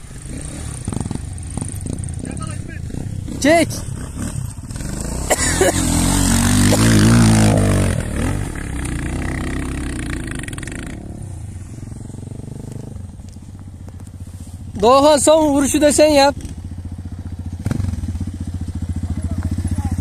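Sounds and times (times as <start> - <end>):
motorcycle engine revving hard: 0.0 - 11.2, 15.9 - 20.0.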